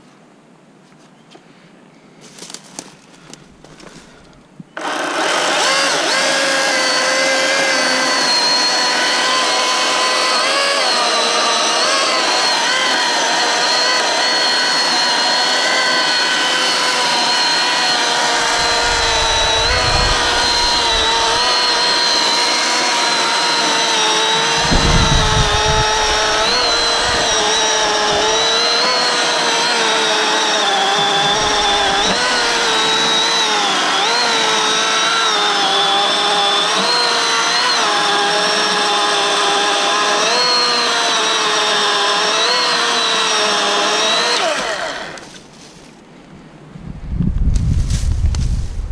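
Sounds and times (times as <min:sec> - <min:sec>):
electric chainsaw cutting log: 0:03.2 - 0:45.5
low rumbles: 0:18.2 - 0:22.5, 0:24.3 - 0:28.7, 0:31.0 - 0:33.0.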